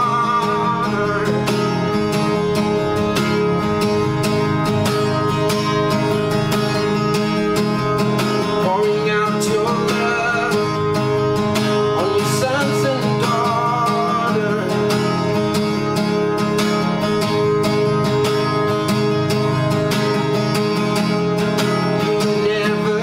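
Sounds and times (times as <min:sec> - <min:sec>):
person singing wordless melody: 0:00.0 - 0:02.0, 0:08.5 - 0:11.0, 0:11.8 - 0:15.0, 0:22.2 - 0:23.0
acoustic guitar strumming: 0:00.0 - 0:23.0.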